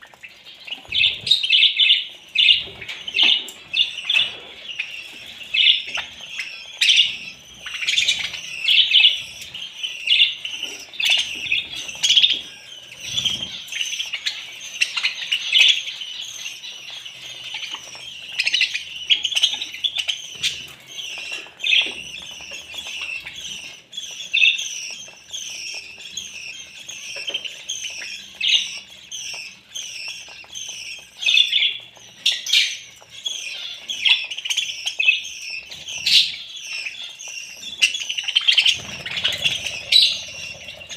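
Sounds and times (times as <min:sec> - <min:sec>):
budgerigars chirping and chattering: 0:00.0 - 0:40.9.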